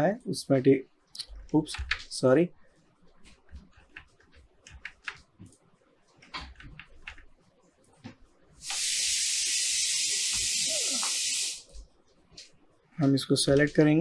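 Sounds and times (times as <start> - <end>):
keyboard and mouse clicks: 1.2 - 2.1, 3.3 - 8.1
high-pitched hiss: 8.6 - 11.7.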